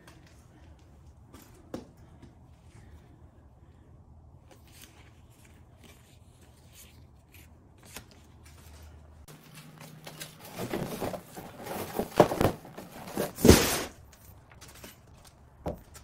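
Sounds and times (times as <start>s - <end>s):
cardboard box rustling and scraping: 10.4s - 14.0s.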